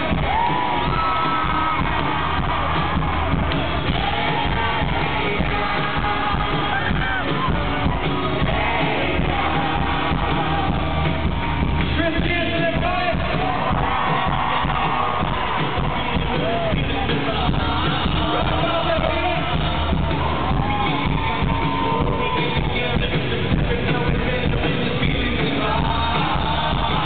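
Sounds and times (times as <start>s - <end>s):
live pop-country band with vocals: 0.0s - 27.0s.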